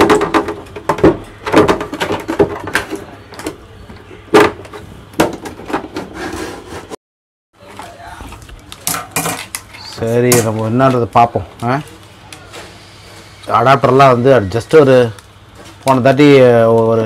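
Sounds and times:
hard plastic knocks and clicks: 0.0 - 6.0.

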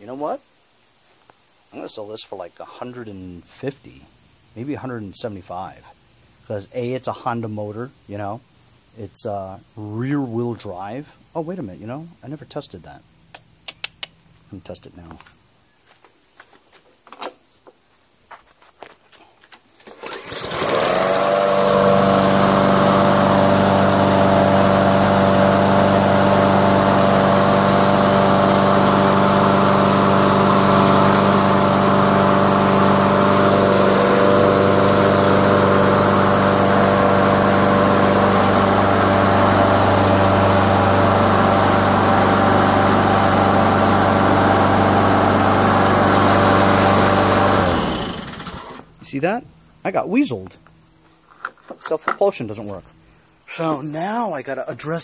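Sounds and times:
lawn mower engine running: 19.8 - 49.0.

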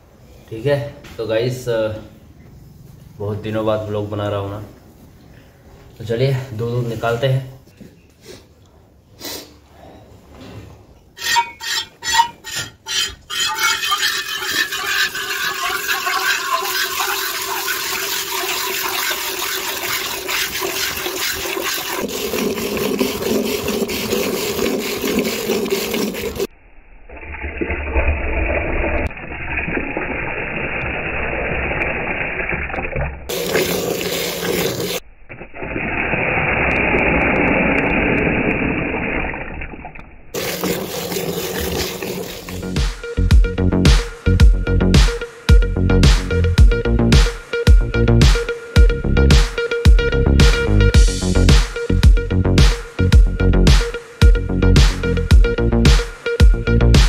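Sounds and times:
milk squirting into steel pail: 11.2 - 26.5, 31.7 - 38.8, 40.4 - 42.7.

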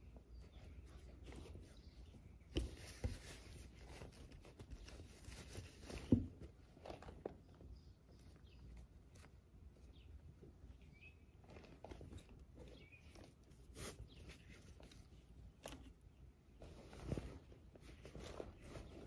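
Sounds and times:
cloth rustling: 0.3 - 8.2, 16.6 - 19.0.

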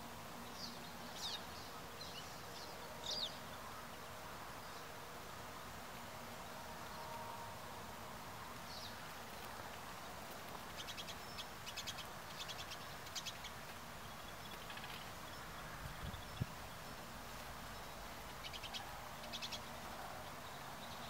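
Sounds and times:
songbird chirping and twittering: 0.0 - 6.0, 6.6 - 21.0
steady outdoor hiss: 0.0 - 21.0.

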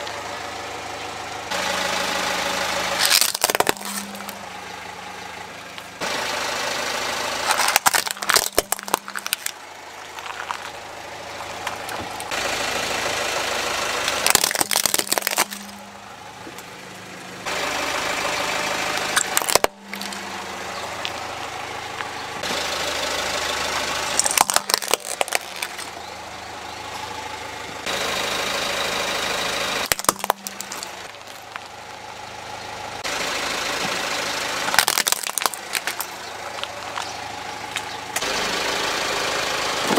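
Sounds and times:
car engine running: 0.0 - 39.9
toys crunching under car tyre: 2.9 - 4.5, 7.4 - 12.4, 14.0 - 15.9, 19.0 - 21.3, 24.1 - 26.1, 29.8 - 32.0, 34.6 - 38.3.

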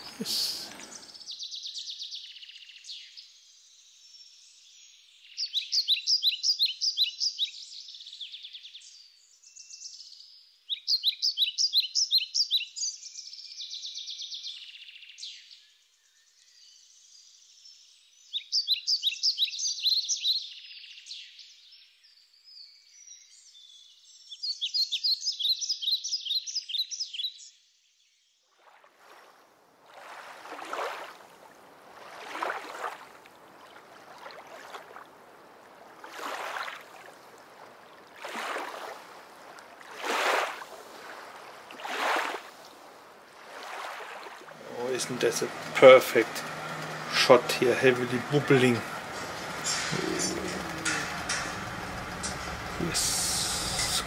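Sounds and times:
faint chirps: 0.0 - 1.3
songbird trilling: 5.4 - 7.6
rushing noise: 44.6 - 54.0.

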